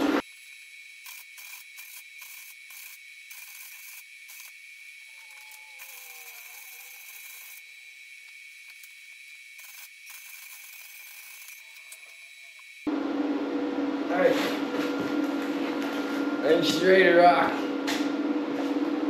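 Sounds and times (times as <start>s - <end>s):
welder arc crackling and hissing: 0.0s - 13.0s.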